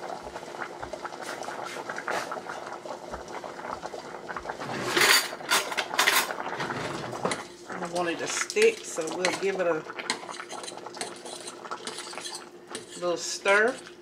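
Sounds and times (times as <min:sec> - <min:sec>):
broth boiling in a saucepan: 0:00.0 - 0:14.0.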